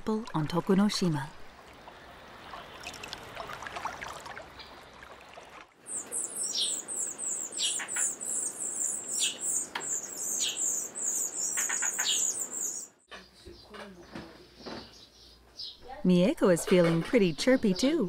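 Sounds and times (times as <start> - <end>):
lower drawn-out bird calls: 5.8 - 13.0
nestling birds chirping: 5.8 - 16.0.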